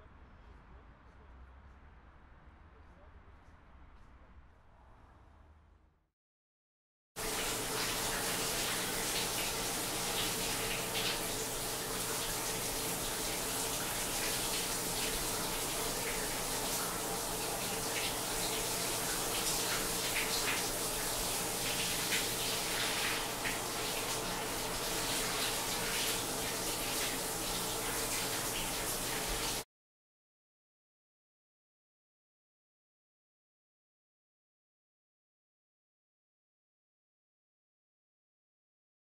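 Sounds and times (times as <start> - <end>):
shower water running: 7.2 - 29.7.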